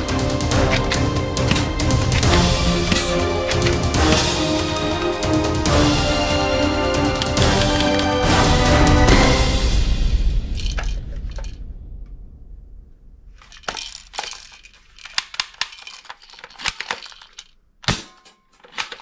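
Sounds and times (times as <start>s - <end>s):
plastic toy rifle rattling: 0.4s - 4.4s, 7.1s - 8.0s, 10.6s - 11.5s, 13.4s - 19.0s.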